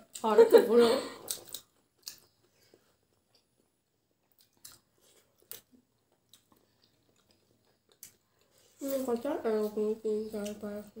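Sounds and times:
people chewing: 0.0s - 10.9s.

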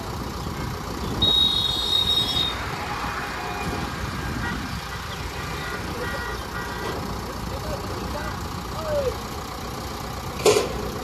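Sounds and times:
diesel engine rumbling: 0.0s - 11.0s
high-pitched vehicle horn: 1.2s - 2.6s, 4.4s - 7.0s.

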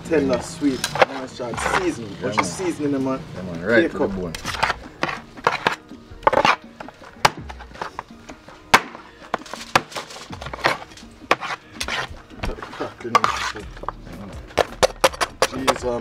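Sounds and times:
background music: 0.0s - 16.0s
cleavers chopping meat on metal tray: 8.7s - 16.0s.

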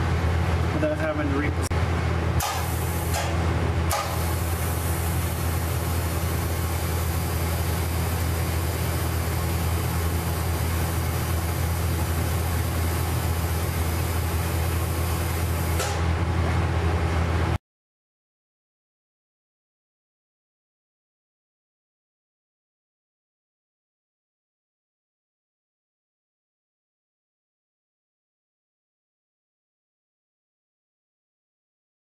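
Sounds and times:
welding machine hum: 0.0s - 17.6s
welding arc hiss: 2.4s - 16.1s.

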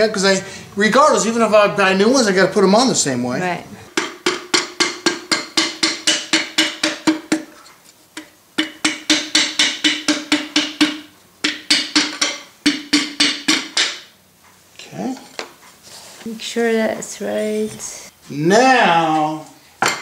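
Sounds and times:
mallet tapping on wooden dowel: 3.9s - 14.2s.

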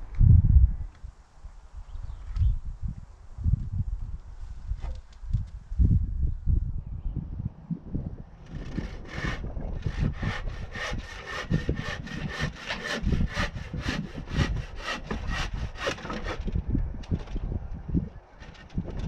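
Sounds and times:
hand saw cutting wood: 8.5s - 16.6s.

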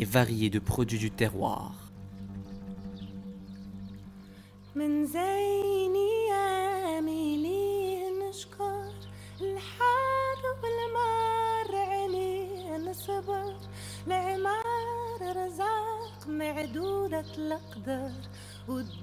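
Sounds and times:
low drone: 0.0s - 7.6s
woman singing slow melody: 4.7s - 19.0s.

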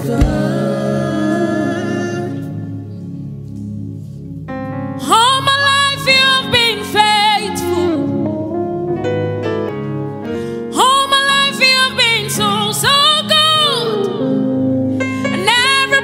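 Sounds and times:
woman singing gospel: 0.0s - 2.7s, 5.0s - 8.4s, 10.7s - 16.0s
keyboard chords: 0.0s - 16.0s.

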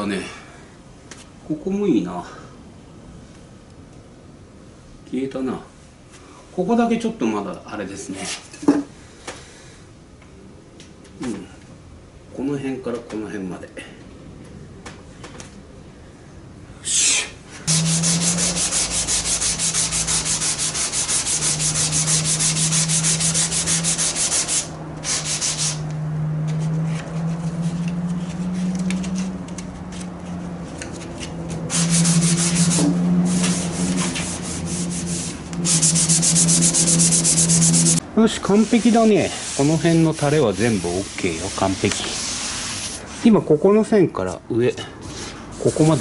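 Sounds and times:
sanding block rubbing strokes: 17.7s - 25.9s, 31.0s - 43.4s, 45.0s - 46.0s.

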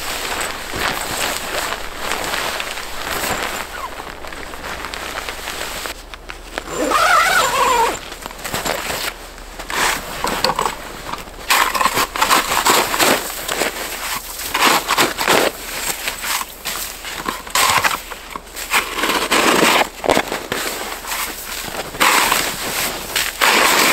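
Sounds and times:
boots crunching snow: 0.0s - 23.9s
canvas rustling and dragging on snow: 0.0s - 23.9s
wavering squeak: 6.7s - 8.1s.

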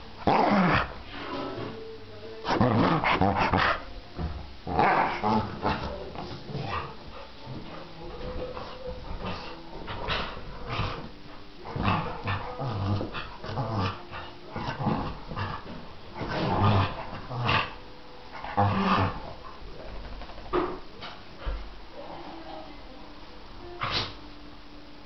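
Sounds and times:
dog growling and grumbling: 0.2s - 1.8s, 2.4s - 7.2s, 8.3s - 20.4s.

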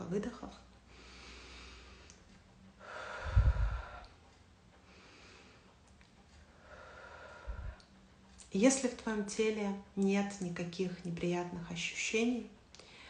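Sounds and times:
woman breathing deeply: 0.9s - 8.0s, 12.8s - 13.0s.

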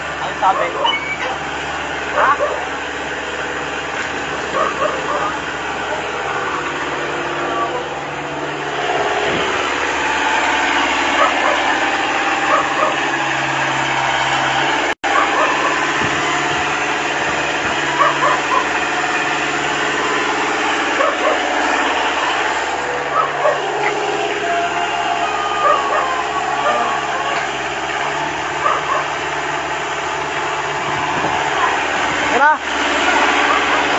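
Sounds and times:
diesel engine idling: 0.0s - 33.9s
dog barking: 0.4s - 1.0s, 2.1s - 2.7s, 4.5s - 5.4s, 11.2s - 11.8s, 12.4s - 13.1s, 15.0s - 15.8s, 18.0s - 18.8s, 21.0s - 21.5s, 23.1s - 23.7s, 25.5s - 27.6s, 28.5s - 29.2s, 31.5s - 31.8s, 33.4s - 33.9s.

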